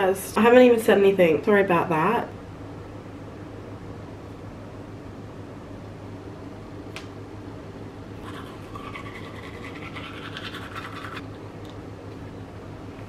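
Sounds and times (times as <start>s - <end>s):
toothbrush scrubbing teeth: 8.2s - 11.3s.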